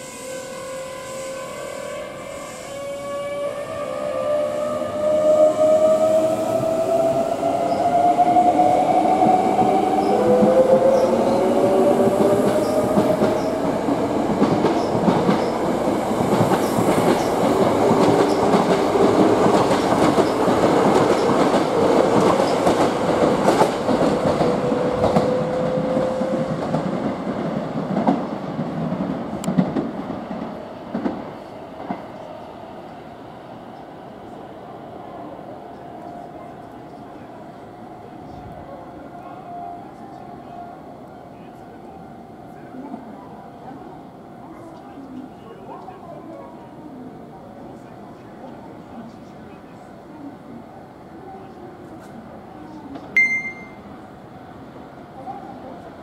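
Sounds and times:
train wheels rumbling and clattering: 4.1 - 32.2.

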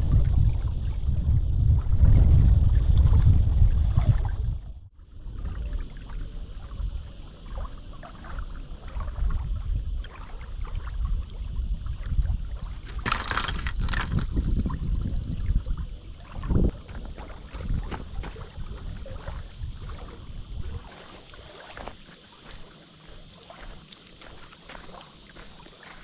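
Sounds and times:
wind buffeting microphone: 0.0 - 4.9, 10.8 - 20.9.

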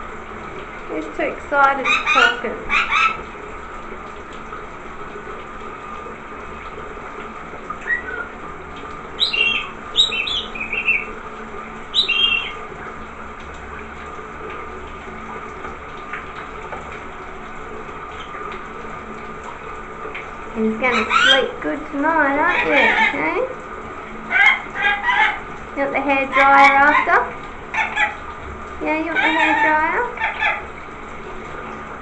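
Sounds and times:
shower water running: 0.0 - 32.0
parrot chirps and squawks: 1.8 - 3.3, 7.8 - 8.3, 9.2 - 11.1, 11.9 - 12.6, 20.9 - 21.6, 22.4 - 23.2, 24.3 - 25.5, 26.3 - 28.2, 29.1 - 30.7.

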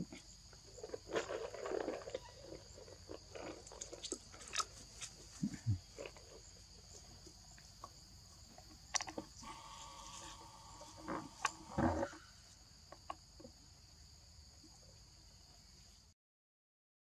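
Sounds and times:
high insect drone: 0.0 - 16.1
monkey grunt: 5.4 - 5.9.

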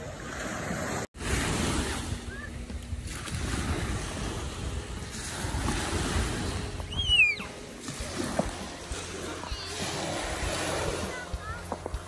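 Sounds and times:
wind on microphone: 0.0 - 11.6
waves breaking on a beach: 0.0 - 12.0
high falling squeal: 6.9 - 7.5.

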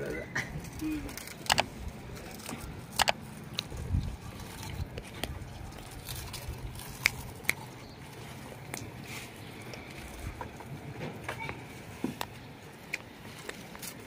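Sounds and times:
people crunching potato chips: 0.5 - 10.7.

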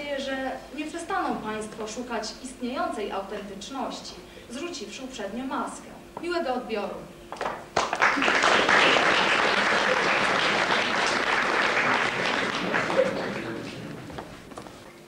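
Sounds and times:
audience applauding: 7.4 - 14.4.

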